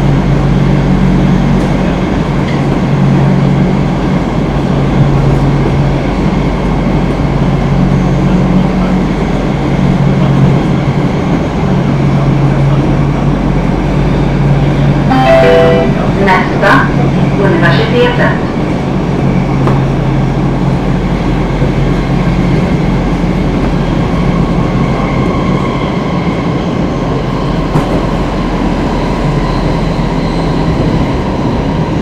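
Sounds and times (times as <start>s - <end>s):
subway wheels rumbling: 0.0s - 32.0s.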